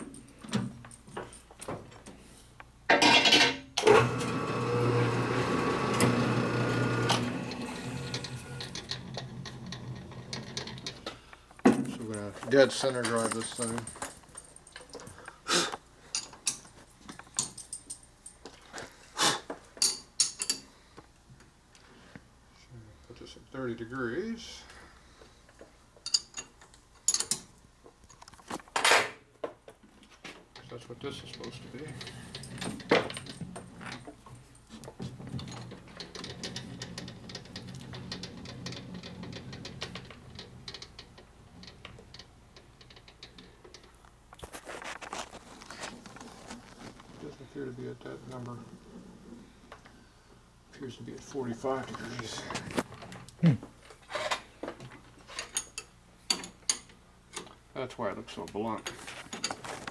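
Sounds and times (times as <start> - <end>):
metal tools clinking and knocking: 2.9 - 3.7, 12.6 - 15.4, 16.1 - 18.6, 19.8 - 20.7, 26.0 - 27.5, 55.3 - 57.5
metallic clicks and rattles of tools: 12.8 - 15.4, 16.1 - 18.5, 19.8 - 20.7, 26.0 - 29.1, 30.6 - 44.2.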